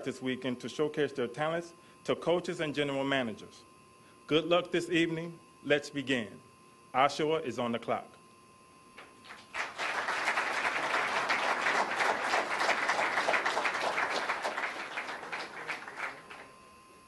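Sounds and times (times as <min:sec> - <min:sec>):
audience applauding: 0:09.2 - 0:16.6.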